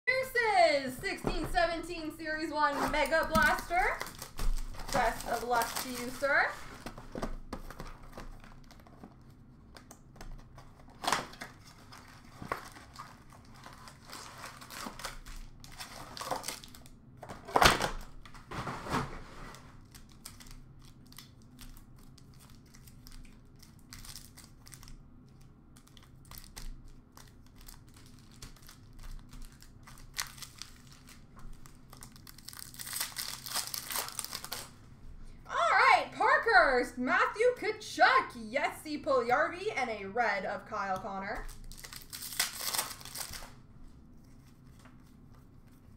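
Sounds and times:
wrappers torn and crinkled: 3.3 - 6.6, 10.8 - 18.4, 19.7 - 34.8, 41.4 - 43.6.

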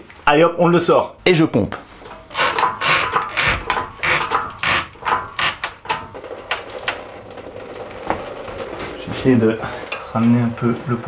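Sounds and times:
hydraulic hoist pumping strokes: 2.1 - 5.8.

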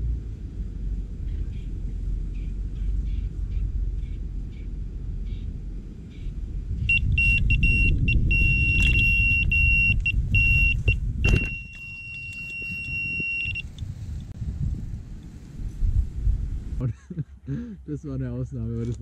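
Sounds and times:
low rumble: 0.0 - 19.0
bite alarm high beeps: 6.8 - 13.7.

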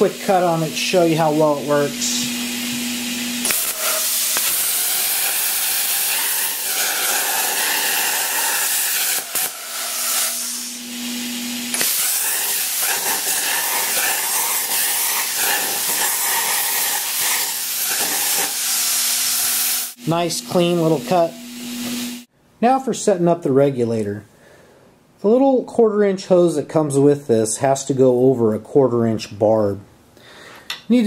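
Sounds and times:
plasma cutter hissing: 0.0 - 10.9, 11.7 - 22.3.

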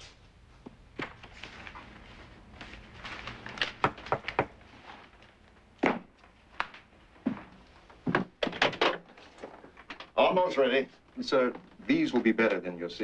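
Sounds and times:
objects thunking on desk: 8.1 - 9.0.

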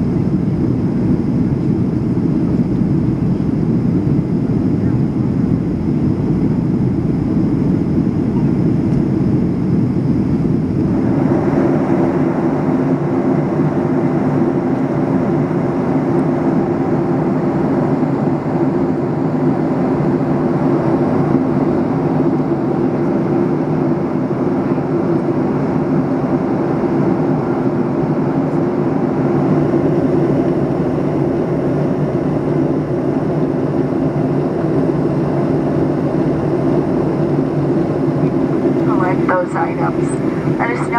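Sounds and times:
airliner cabin engine roar: 0.0 - 40.9.

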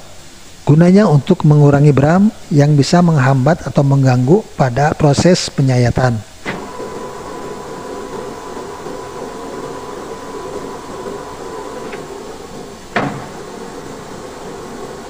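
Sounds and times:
metal lathe running with whine: 6.3 - 15.0.

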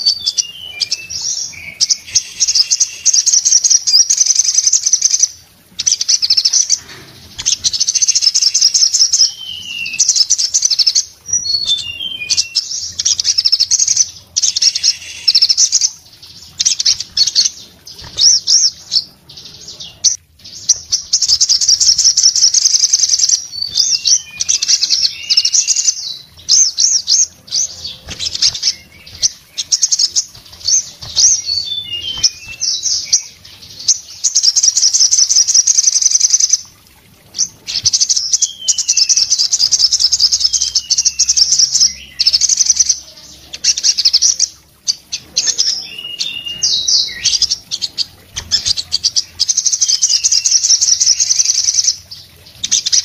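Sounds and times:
bird high twittering song: 0.0 - 36.7, 37.3 - 53.0.

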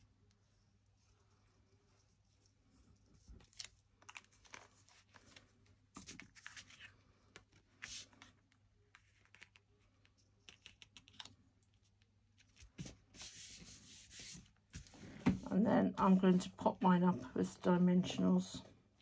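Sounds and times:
paper and card handling: 3.3 - 15.0.

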